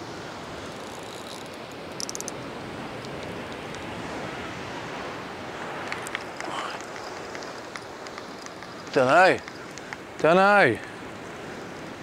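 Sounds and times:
sea surf washing on shore: 0:00.0 - 0:12.0
wind: 0:00.0 - 0:12.0
small clicks: 0:00.8 - 0:02.4, 0:05.8 - 0:11.0.

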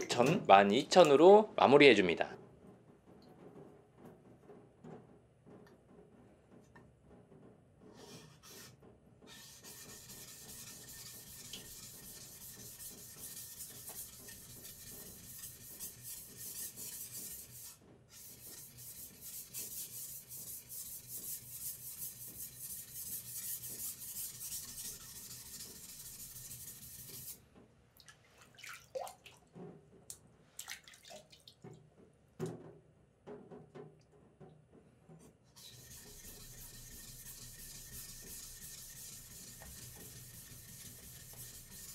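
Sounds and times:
knife scraping on whetstone: 0:08.0 - 0:27.4, 0:35.6 - 0:41.9.

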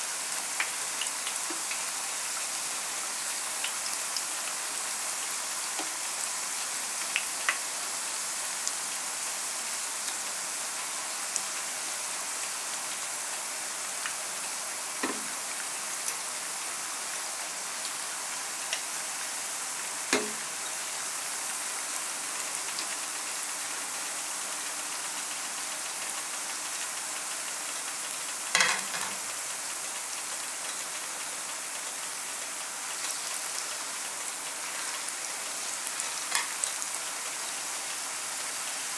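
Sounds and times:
slices frying in hot oil: 0:00.0 - 0:38.9
spatula knocking against pan: 0:20.1 - 0:20.4.

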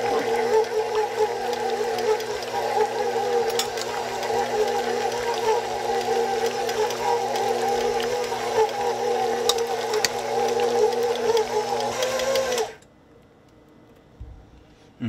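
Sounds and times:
stand mixer motor whine: 0:00.0 - 0:12.8.

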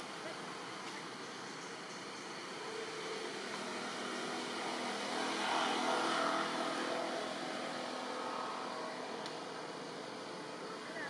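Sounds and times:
motor vehicle passing: 0:02.8 - 0:09.7.

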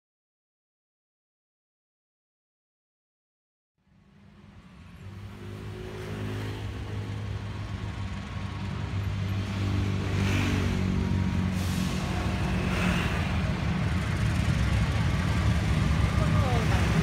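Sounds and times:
locomotive engine humming: 0:06.7 - 0:10.1, 0:10.8 - 0:17.0.

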